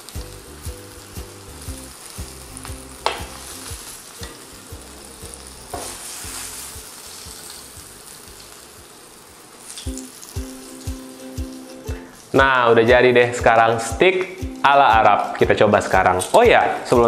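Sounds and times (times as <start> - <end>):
soft music with a steady beat: 0.0 - 8.6, 9.8 - 17.0
food sizzling on a grill pan: 0.0 - 17.0
metal tongs clinking: 4.2 - 4.6.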